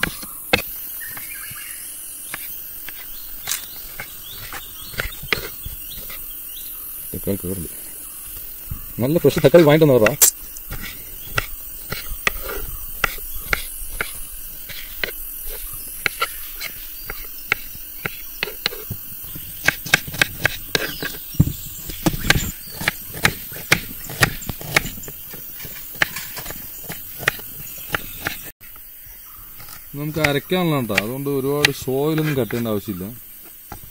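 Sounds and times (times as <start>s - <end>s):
knife chopping on wooden board: 2.3s - 6.2s, 8.8s - 28.5s, 30.1s - 32.7s.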